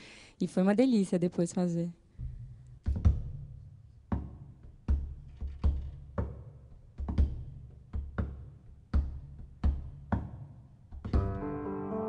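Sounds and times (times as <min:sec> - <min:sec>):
double bass plucked notes: 0:11.1 - 0:12.0.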